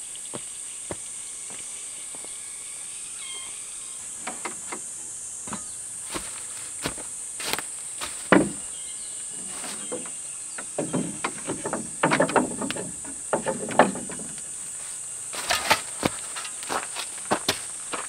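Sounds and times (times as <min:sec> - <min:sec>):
insects chirring: 0:00.0 - 0:18.0
steps on dry leaves: 0:06.0 - 0:08.6, 0:14.8 - 0:18.0
wooden gate knocking and rattling: 0:08.3 - 0:08.7, 0:09.7 - 0:14.4
hoe set down: 0:15.4 - 0:16.8.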